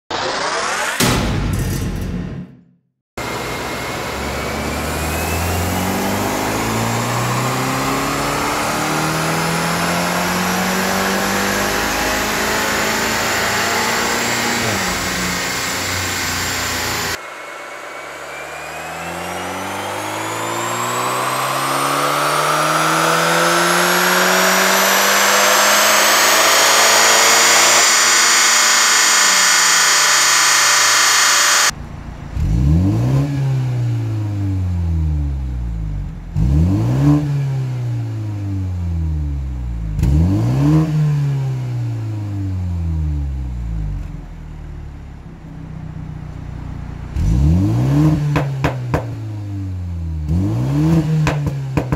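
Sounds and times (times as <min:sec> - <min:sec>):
car engine revving at full throttle: 0:00.1 - 0:01.0, 0:03.2 - 0:45.2, 0:46.2 - 0:51.9
high whine: 0:03.2 - 0:32.0.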